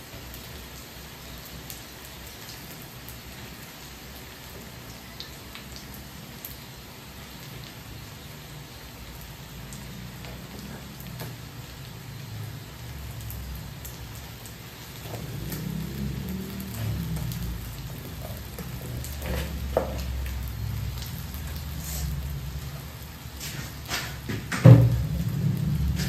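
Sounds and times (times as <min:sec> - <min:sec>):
rice sizzling in a wok: 0:00.0 - 0:26.0
small crackles and clicks: 0:09.7 - 0:11.5, 0:13.2 - 0:24.3.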